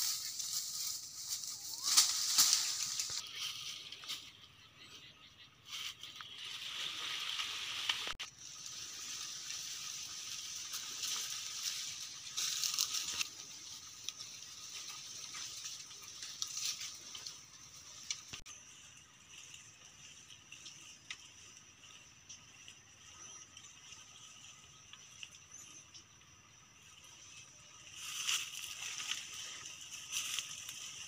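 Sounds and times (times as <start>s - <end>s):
footsteps on dry leaves: 0.0s - 4.4s, 5.7s - 20.3s, 28.0s - 31.0s.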